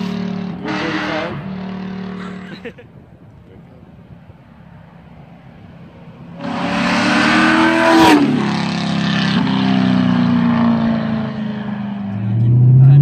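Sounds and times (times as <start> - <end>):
car exhaust accelerating past: 5.4 - 13.0.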